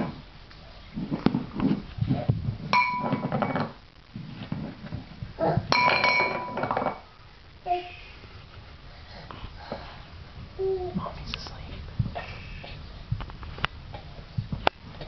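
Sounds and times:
metal bowl rattling on tile floor: 2.7 - 3.8, 5.7 - 7.1.

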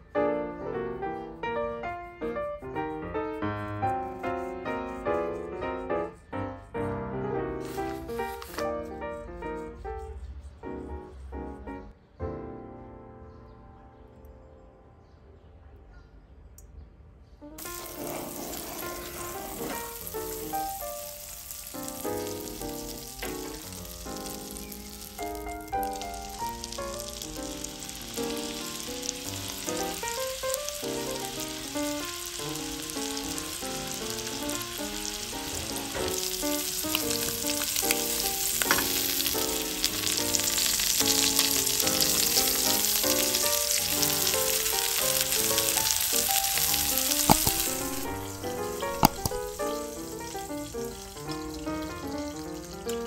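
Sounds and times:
light background music: 0.0 - 15.0, 17.9 - 53.0
chicken sizzling in pan: 7.6 - 8.7, 17.6 - 53.0.

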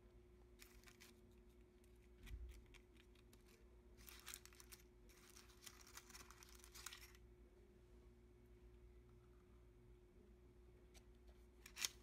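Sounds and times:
faint room hum: 0.0 - 12.0
paper baking cup crinkling: 0.6 - 7.2.

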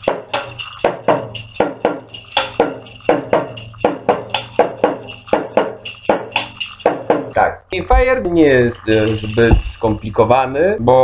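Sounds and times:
hand-shaken rattle: 0.0 - 7.4.

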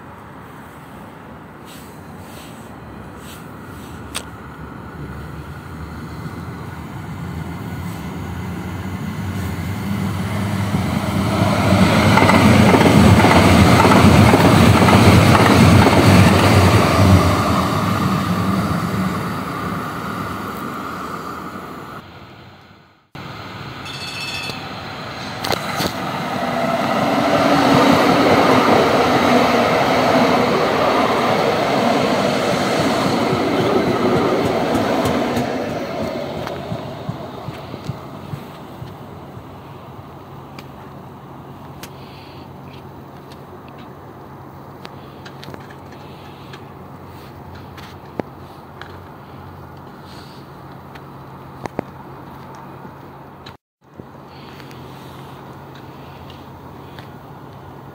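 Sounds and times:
light rail train rumbling past: 0.0 - 53.4
brief high-pitched tone: 23.8 - 24.8.

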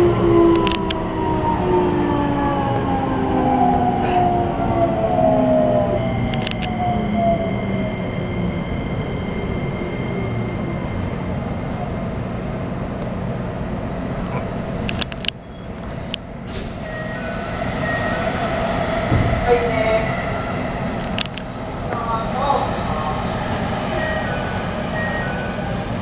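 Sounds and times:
wheels rumbling on rail: 0.0 - 26.0
electric train motor whine: 16.5 - 21.9, 23.0 - 26.0.

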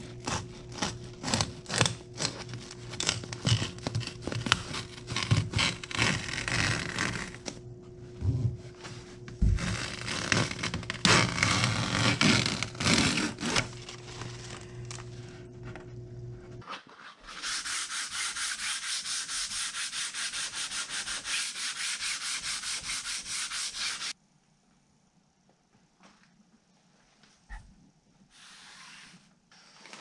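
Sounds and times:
sanding block rubbing fiberglass: 17.3 - 24.2.

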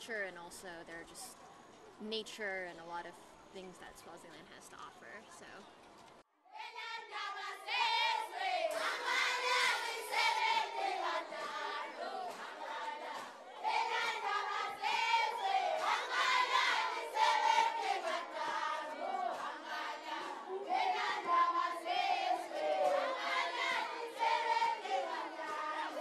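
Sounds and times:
crowd noise: 0.0 - 26.0
women singing in chorus: 6.5 - 26.0.

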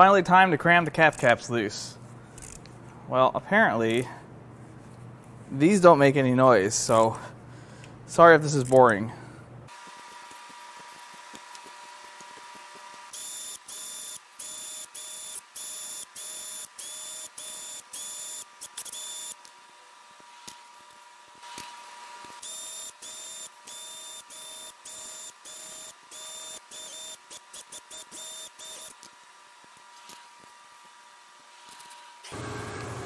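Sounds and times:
cordless power tool whining: 20.4 - 29.1, 31.5 - 33.0.

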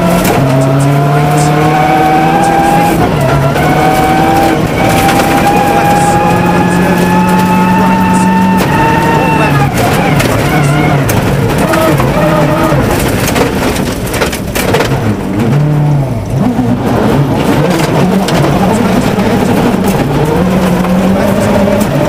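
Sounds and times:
clatter: 0.0 - 1.6, 2.2 - 22.0
rally car engine revving: 0.0 - 22.0.

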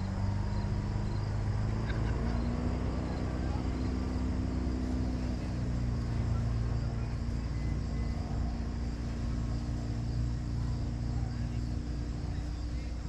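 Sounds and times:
low engine drone: 0.0 - 13.0.

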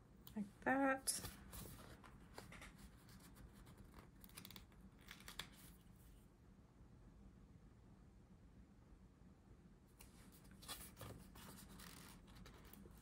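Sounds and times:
stickers peeling and crinkling: 1.6 - 5.7.

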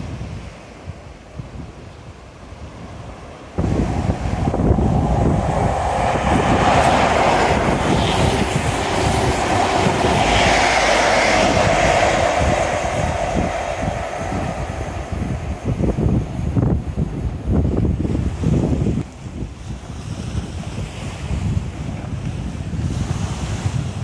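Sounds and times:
diesel train engine running: 3.6 - 17.6.

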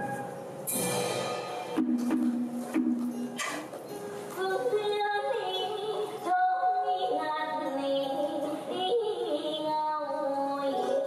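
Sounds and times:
instrumental accompaniment: 0.0 - 4.4
woman singing with sliding notes: 3.9 - 11.0.

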